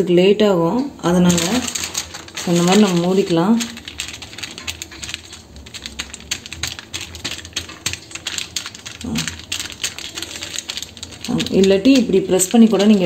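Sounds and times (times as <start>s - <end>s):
baking sheet crinkling: 1.1s - 13.0s.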